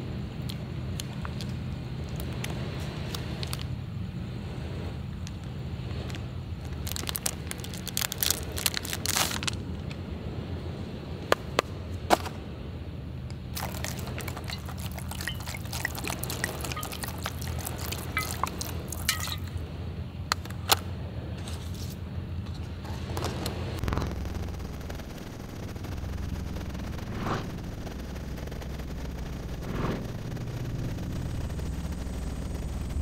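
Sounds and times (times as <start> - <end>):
steady low hum: 0.0 - 33.0
sharp clicks and crackles: 0.4 - 3.8, 5.2 - 10.0, 13.3 - 19.6, 23.0 - 33.0
liquid dripping and splashing: 13.6 - 19.6.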